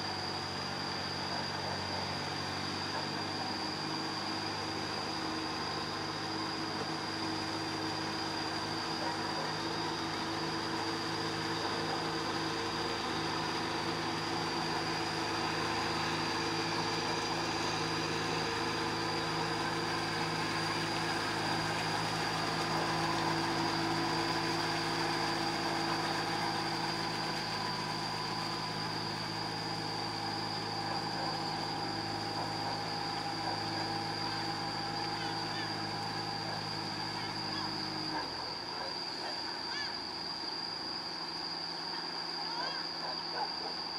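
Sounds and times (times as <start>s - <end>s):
tractor engine running: 6.8s - 38.4s.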